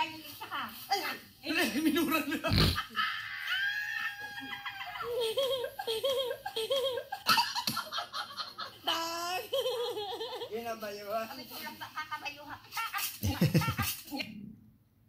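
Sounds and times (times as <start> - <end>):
person laughing heartily: 2.4 - 8.7, 13.0 - 14.0.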